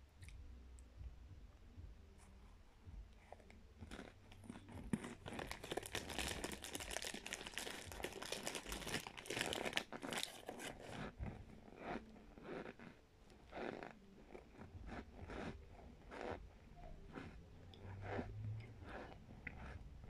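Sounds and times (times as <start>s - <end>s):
mouth chewing crunchy powder: 3.1s - 20.0s.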